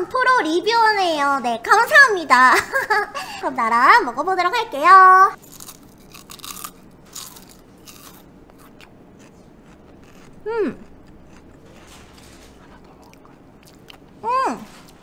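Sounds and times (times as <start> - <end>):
crunching crisp crackers: 5.4 - 14.1
person humming: 10.4 - 10.9.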